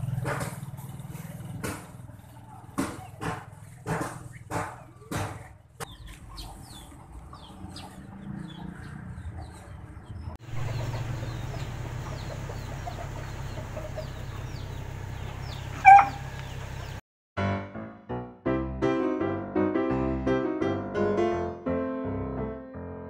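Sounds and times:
birds chirping: 0.0 - 17.0
chickens clucking: 0.1 - 17.0
steady low hum: 10.4 - 17.0.

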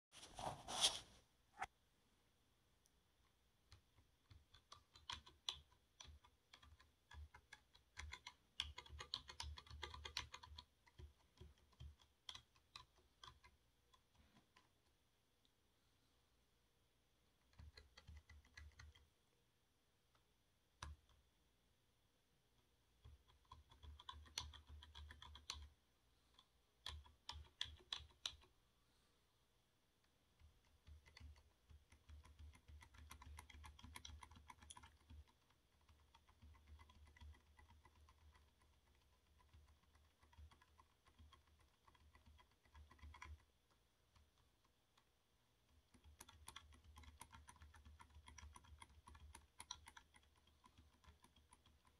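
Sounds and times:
computer keyboard typing: 3.7 - 14.8, 17.4 - 19.1, 23.0 - 25.8, 26.8 - 28.5, 30.3 - 51.9.

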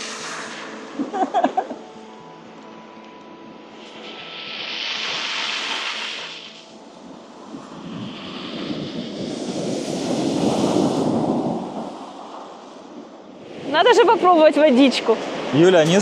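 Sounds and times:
waves washing onto beach: 3.7 - 13.8.

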